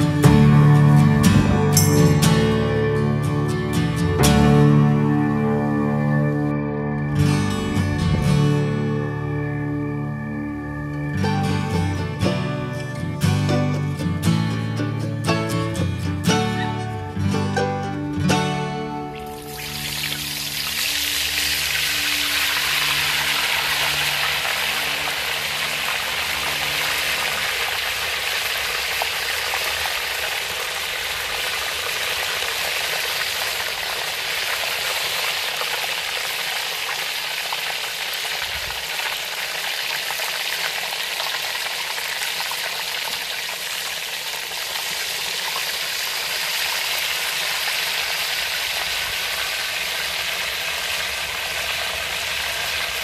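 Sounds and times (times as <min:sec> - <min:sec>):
guitar music: 0:00.0 - 0:27.5
oil sizzling while deep-frying: 0:19.2 - 0:53.0.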